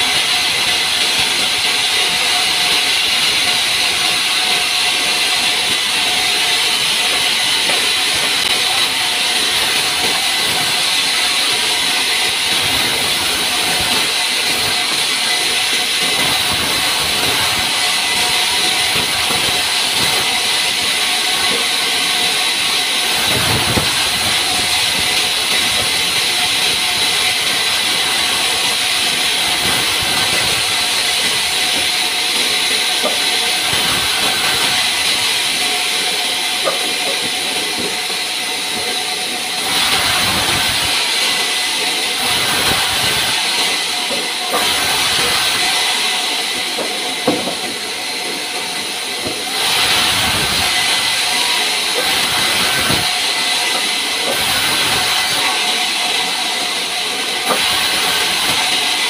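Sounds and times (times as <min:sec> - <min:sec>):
band saw cutting wood: 0:00.0 - 0:59.0
knock: 0:46.8 - 0:47.7.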